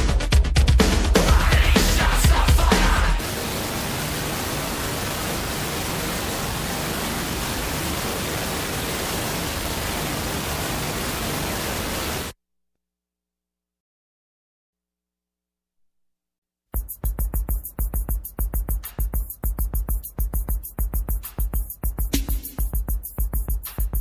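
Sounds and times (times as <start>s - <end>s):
static-like white noise: 1.7s - 12.4s.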